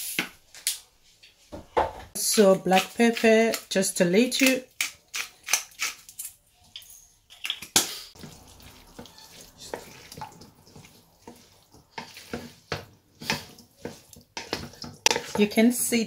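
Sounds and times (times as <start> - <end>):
spoon mixing salad in bowl: 2.2 - 16.0.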